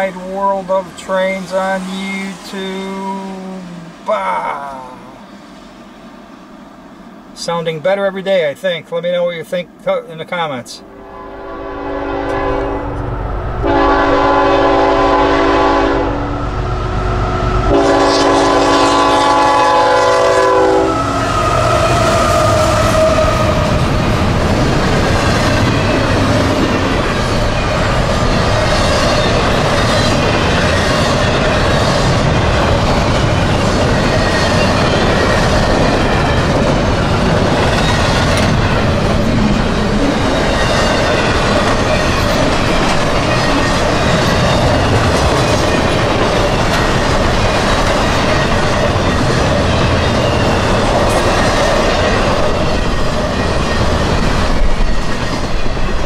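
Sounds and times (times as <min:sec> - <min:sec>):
train rolling on rails: 0:00.0 - 0:56.0
train horn blasts: 0:10.8 - 0:23.7.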